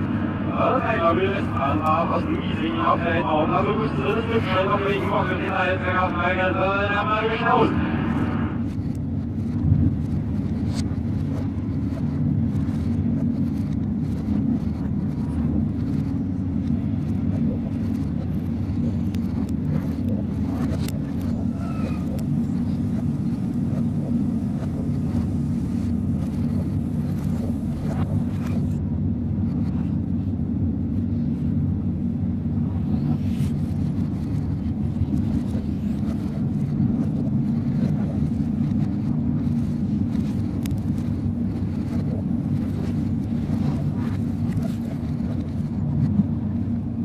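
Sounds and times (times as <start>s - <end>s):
electric train low rumble: 0.0s - 47.0s.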